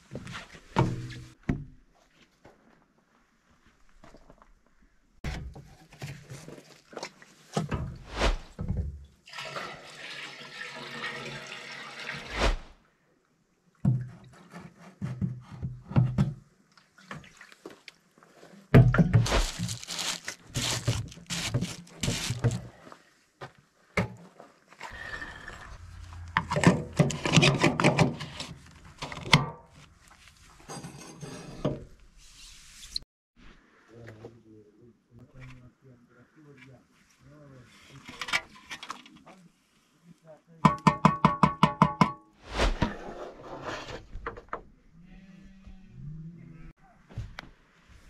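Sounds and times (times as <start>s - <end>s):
knocks and scrapes of can: 26.3s - 29.4s.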